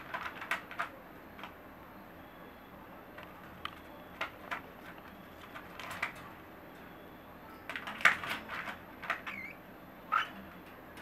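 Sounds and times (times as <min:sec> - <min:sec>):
birds pecking and scrabbling: 0:00.0 - 0:01.7.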